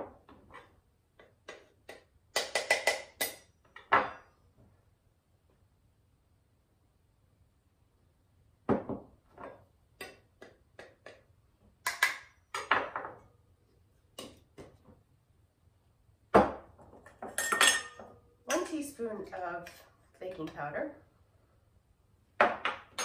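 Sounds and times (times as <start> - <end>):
kitchen utensils tapping and clinking: 0.5 - 4.3, 11.8 - 13.2, 16.9 - 18.8.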